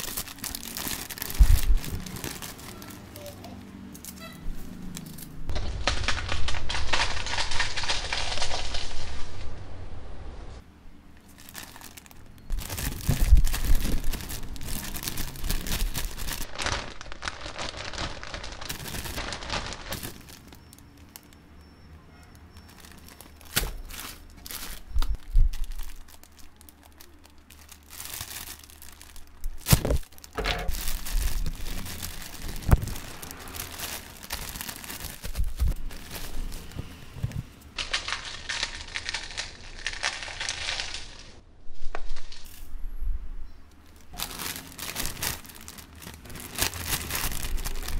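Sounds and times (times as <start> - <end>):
potato chips being crushed: 0.0 - 2.9, 5.0 - 9.0, 11.3 - 21.3, 22.6 - 36.3, 37.8 - 41.3, 44.1 - 47.9
chip bag crinkling: 0.0 - 3.3, 4.9 - 9.2, 11.2 - 21.4, 22.3 - 36.7, 37.8 - 41.4, 43.8 - 47.9.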